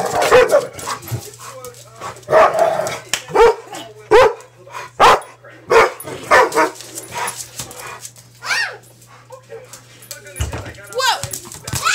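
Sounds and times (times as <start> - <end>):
dog barking: 0.0 - 0.8, 2.3 - 2.7, 3.3 - 6.8.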